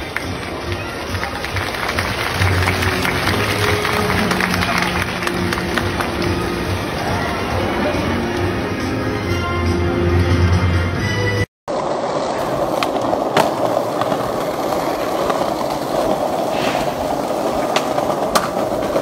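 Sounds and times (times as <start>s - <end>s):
skateboard clacks: 0.0s - 7.6s, 11.7s - 19.0s
background music: 0.0s - 11.5s
skateboard wheels rolling on concrete: 0.0s - 19.0s.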